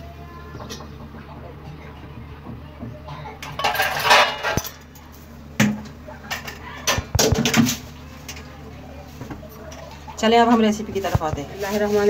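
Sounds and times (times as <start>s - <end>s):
dishware clinking: 3.4s - 4.9s
dishware scraping rustle: 3.6s - 4.8s, 10.6s - 12.0s.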